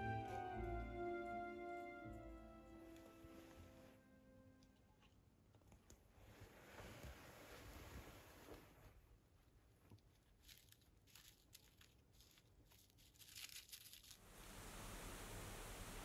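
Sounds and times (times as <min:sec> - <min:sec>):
crinkling and rustling handling noise: 0:04.7 - 0:14.3
faint hiss: 0:13.2 - 0:16.0.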